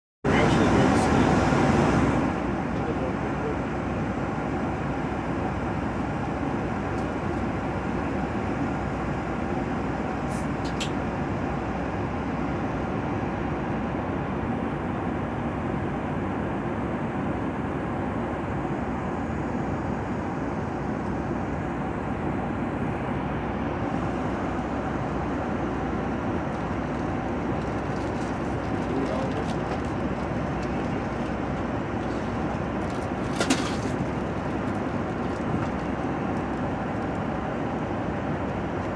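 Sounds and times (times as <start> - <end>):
low engine drone: 0.3 - 38.9
jet cabin air rush: 0.4 - 2.5, 10.2 - 10.9.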